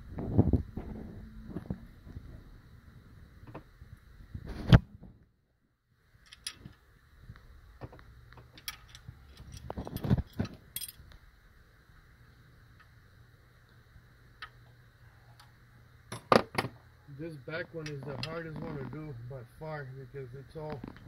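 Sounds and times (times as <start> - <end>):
metal tools clicking and clinking: 6.3 - 6.8, 8.6 - 11.0.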